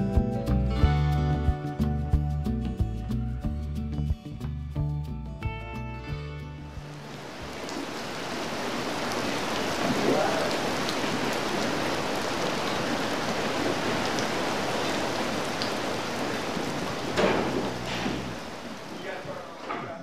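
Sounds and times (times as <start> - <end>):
heavy rain on pavement: 6.7 - 19.7.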